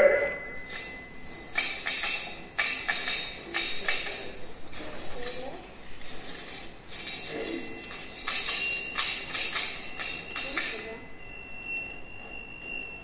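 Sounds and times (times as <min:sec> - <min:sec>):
jingle bells and hand bells jangling: 0:00.0 - 0:13.0.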